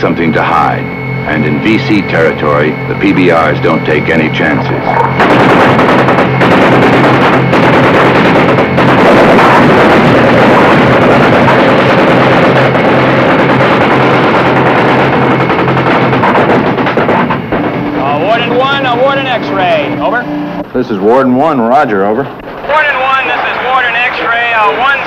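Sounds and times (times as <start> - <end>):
boat engines running: 0.0 - 25.0
machine-gun fire: 4.9 - 19.8.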